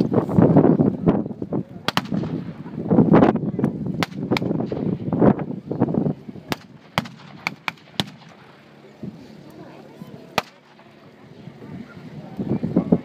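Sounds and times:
blank gunshots: 10.4s - 10.7s.

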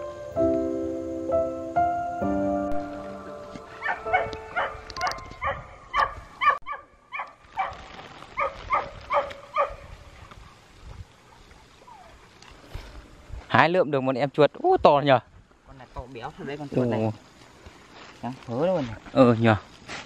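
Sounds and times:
dog barking: 3.8s - 7.8s, 8.4s - 9.8s.

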